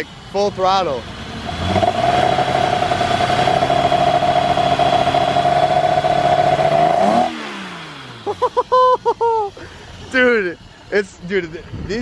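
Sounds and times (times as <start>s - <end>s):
car engine revving high: 0.8s - 8.7s.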